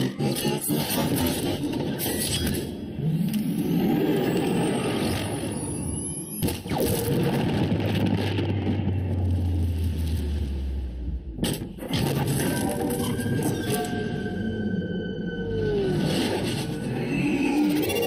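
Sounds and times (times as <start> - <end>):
rising whines: 2.9 - 11.4, 12.5 - 18.0
low rumble: 7.0 - 17.8.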